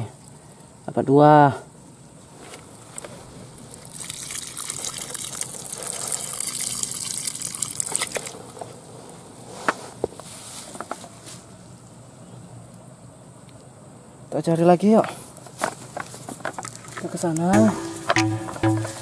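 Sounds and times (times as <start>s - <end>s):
water sloshing in a bucket: 3.8s - 8.6s.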